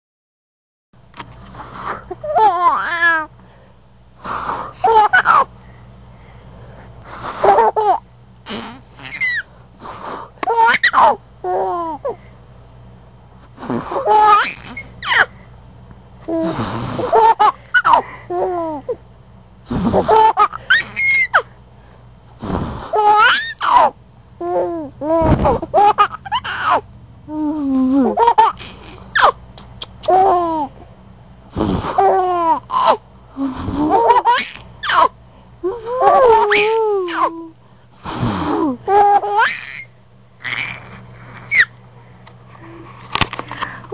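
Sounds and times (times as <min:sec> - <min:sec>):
baby laughing: 0:02.1 - 0:03.3, 0:04.8 - 0:05.5, 0:07.4 - 0:09.5, 0:10.4 - 0:12.1, 0:14.0 - 0:15.3, 0:16.3 - 0:19.0, 0:19.9 - 0:21.5, 0:22.9 - 0:26.8, 0:27.5 - 0:30.8, 0:32.0 - 0:33.0, 0:33.8 - 0:37.5, 0:38.6 - 0:41.7.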